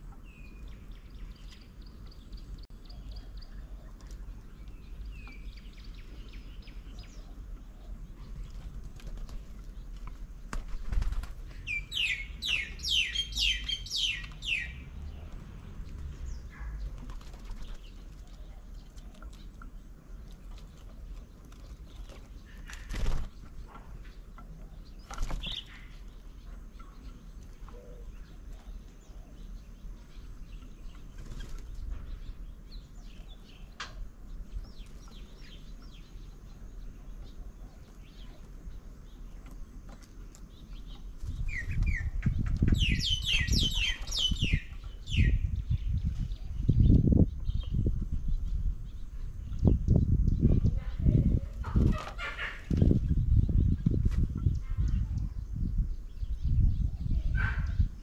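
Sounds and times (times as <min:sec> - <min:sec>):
small birds chirping: 0:00.0 - 0:58.0
wings fluttering: 0:08.4 - 0:11.9, 0:15.3 - 0:19.6, 0:20.2 - 0:23.9, 0:25.0 - 0:25.9, 0:31.0 - 0:31.9, 0:51.4 - 0:53.0.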